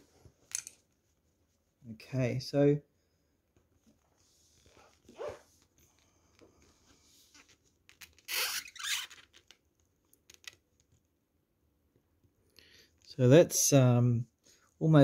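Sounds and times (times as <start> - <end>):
short squeak: 8.3 - 9.4.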